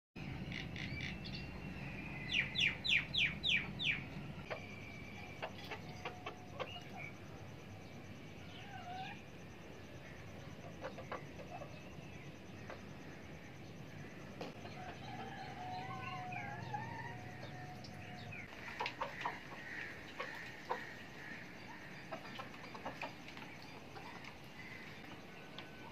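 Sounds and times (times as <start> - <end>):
chickens clucking: 3.2 - 7.2, 10.4 - 13.0, 14.4 - 24.8.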